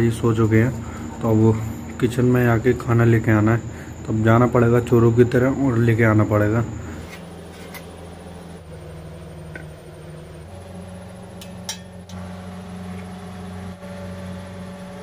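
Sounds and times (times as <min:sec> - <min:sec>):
steady low hum: 0:00.0 - 0:15.0
spoon against steel pot: 0:11.4 - 0:11.9
steel kitchenware clinking: 0:11.4 - 0:12.0.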